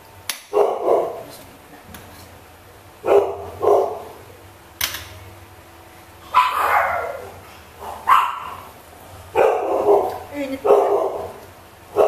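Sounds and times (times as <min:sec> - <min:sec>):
dog barking: 0:00.5 - 0:01.3, 0:03.0 - 0:04.1, 0:06.3 - 0:08.7, 0:09.3 - 0:12.0.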